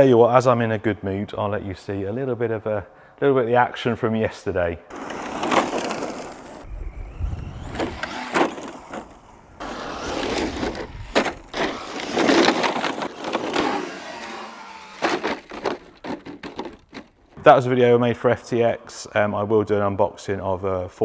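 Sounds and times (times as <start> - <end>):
rc car tyres crunching on gravel: 4.9 - 6.7, 7.4 - 17.4.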